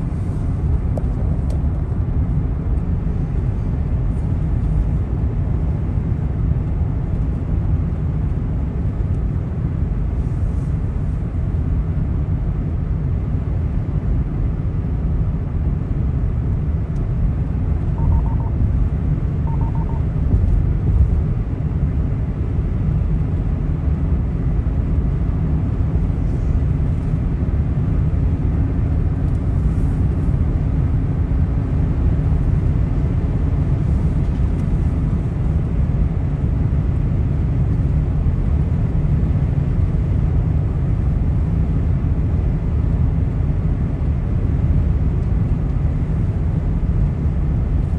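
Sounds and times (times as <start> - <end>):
car road and engine rumble: 0.0 - 47.9
faint steady hum: 0.0 - 47.9
faint short beeps: 18.0 - 18.6, 19.4 - 20.1.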